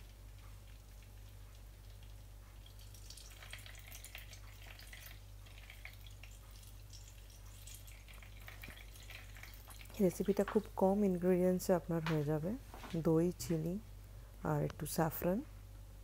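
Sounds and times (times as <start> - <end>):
whey trickling and dripping: 0.0 - 10.8.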